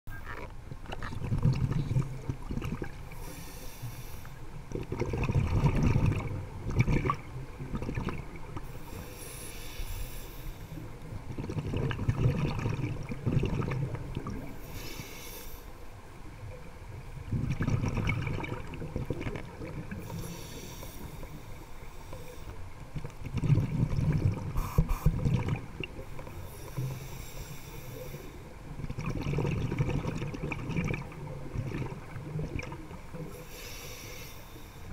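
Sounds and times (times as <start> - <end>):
exhaled bubbles gurgling: 0.2 - 3.5, 4.6 - 9.1, 10.8 - 15.1, 16.4 - 33.5
regulator inhale hiss: 3.1 - 4.6, 8.7 - 11.0, 14.5 - 16.0, 20.0 - 22.8, 24.6 - 25.2, 26.2 - 28.6, 33.2 - 34.9.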